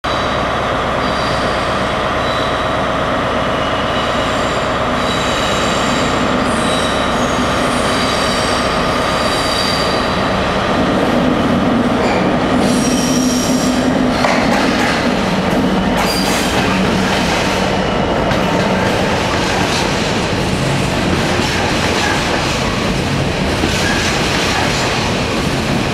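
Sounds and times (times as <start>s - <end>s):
diesel locomotive engine drone: 0.0s - 25.9s
train wheels squealing: 1.0s - 2.8s, 3.5s - 10.3s, 12.0s - 13.9s, 16.0s - 16.8s.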